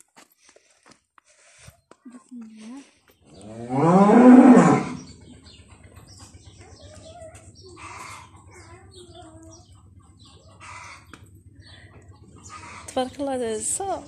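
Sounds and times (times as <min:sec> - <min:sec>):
cow mooing: 0:03.3 - 0:05.2.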